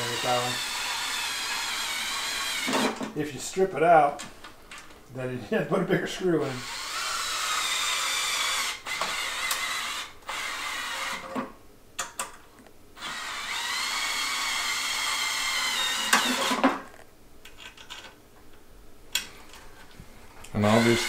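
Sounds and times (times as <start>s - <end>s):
cordless drill whining: 0.0s - 3.0s, 6.6s - 11.3s, 13.0s - 16.8s, 20.6s - 21.0s.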